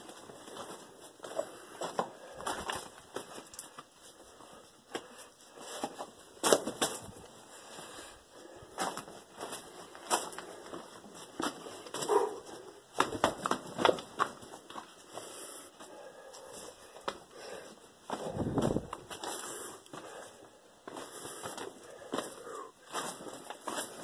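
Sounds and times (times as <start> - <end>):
footsteps on gravel: 18.1 - 20.2.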